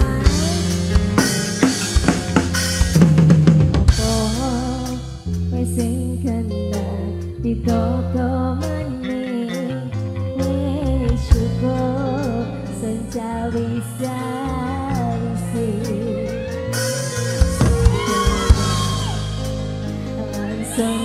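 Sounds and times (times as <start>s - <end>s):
woman singing: 0.0s - 1.4s, 3.9s - 19.2s, 20.0s - 21.0s
live band playing: 0.0s - 21.0s.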